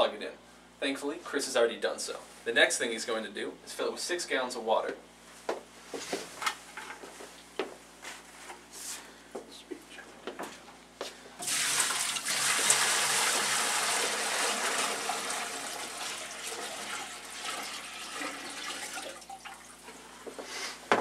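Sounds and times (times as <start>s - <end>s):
water pouring into a tank: 11.4s - 19.8s.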